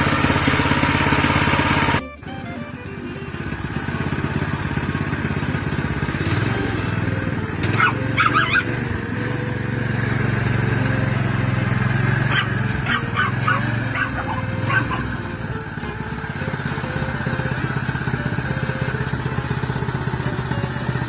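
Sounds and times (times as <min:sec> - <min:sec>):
small gasoline engine running: 0:00.0 - 0:21.0
dogs barking: 0:07.6 - 0:08.9, 0:12.1 - 0:15.4.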